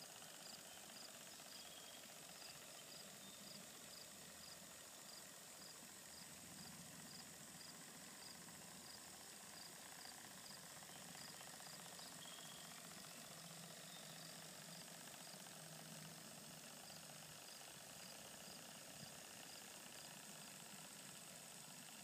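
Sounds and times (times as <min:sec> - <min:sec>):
soft steady hiss: 0:00.0 - 0:22.0
cricket chirping: 0:00.4 - 0:09.0, 0:09.6 - 0:15.4.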